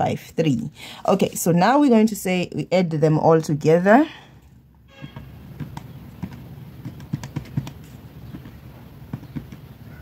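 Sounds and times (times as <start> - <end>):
calculator keys tapping: 5.1 - 10.0.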